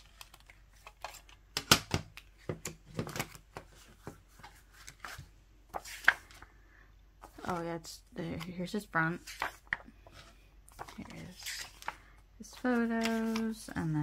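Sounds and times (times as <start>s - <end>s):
paper pages rustling: 0.0s - 1.4s, 3.0s - 6.5s, 9.2s - 13.9s.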